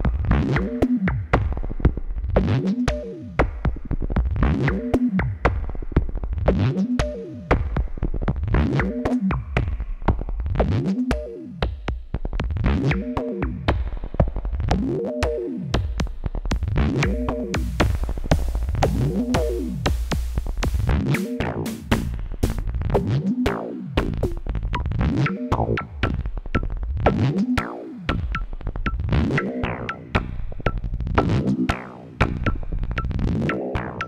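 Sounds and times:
deep bass: 0:11.9 - 0:34.0.

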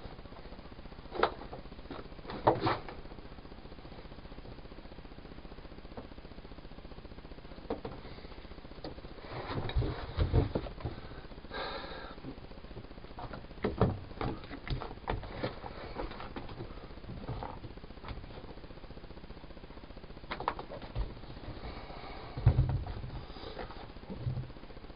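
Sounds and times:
knocks and thumps of mats: 0:09.4 - 0:11.0, 0:22.4 - 0:23.2.

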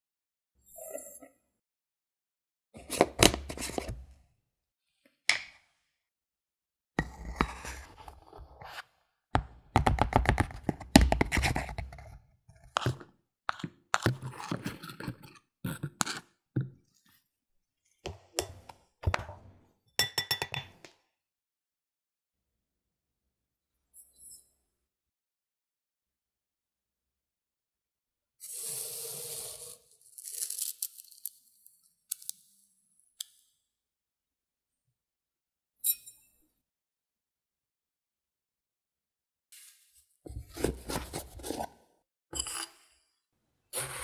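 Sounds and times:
flour pouring into glass bowl: 0:28.4 - 0:31.2
metal cup scraping and tapping: 0:42.4 - 0:42.8.

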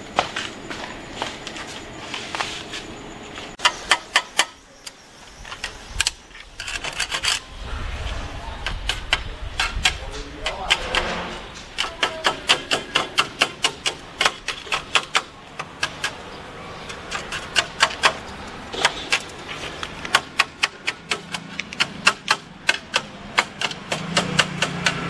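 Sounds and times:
sharp metallic clicks and taps: 0:18.8 - 0:25.0.

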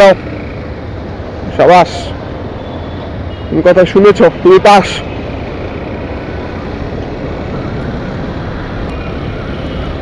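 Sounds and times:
motorcycle engine rumbling: 0:04.2 - 0:10.0.

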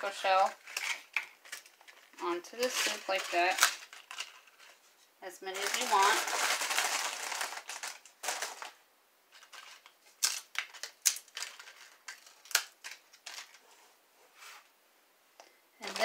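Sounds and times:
taco shells cracking and crunching: 0:09.5 - 0:13.4.

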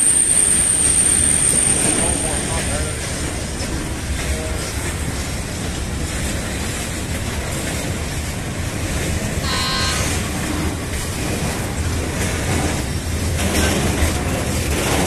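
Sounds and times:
freight train rumbling: 0:00.0 - 0:15.0
brief high tone: 0:09.4 - 0:10.3.

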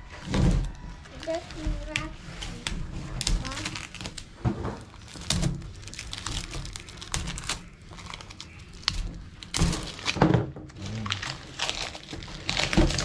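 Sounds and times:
plastic packaging crinkling: 0:00.0 - 0:13.0.

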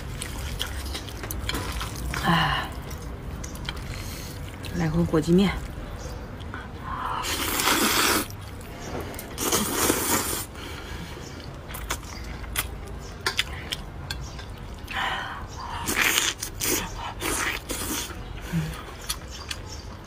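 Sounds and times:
chewing clicks: 0:00.0 - 0:04.8, 0:05.6 - 0:09.6, 0:11.3 - 0:15.0, 0:15.8 - 0:20.0
noodles being slurped: 0:07.0 - 0:10.6, 0:15.6 - 0:18.3.

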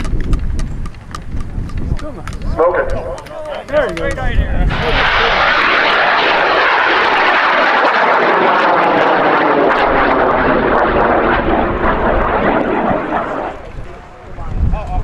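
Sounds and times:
rocket motor burning: 0:03.8 - 0:14.3.

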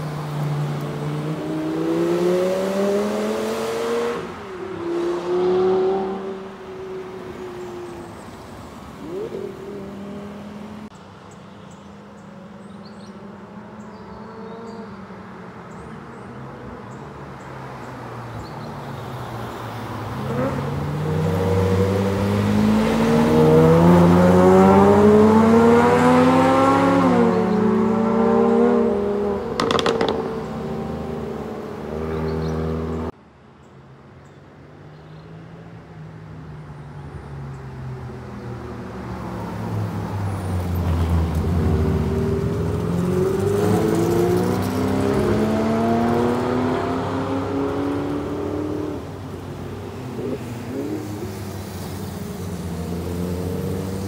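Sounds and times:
sports car engines accelerating: 0:00.0 - 0:11.0, 0:19.7 - 0:33.2, 0:37.2 - 0:54.0.

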